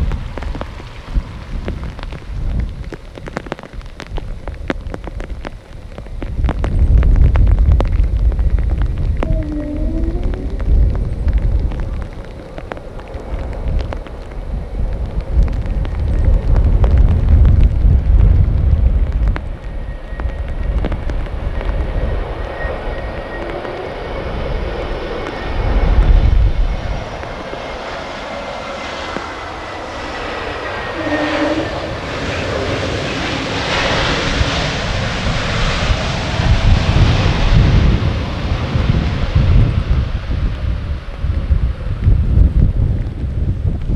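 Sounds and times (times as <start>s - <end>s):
wind rumbling on microphone: 0.0s - 43.9s
jet engines whining: 9.2s - 11.3s, 21.7s - 39.5s.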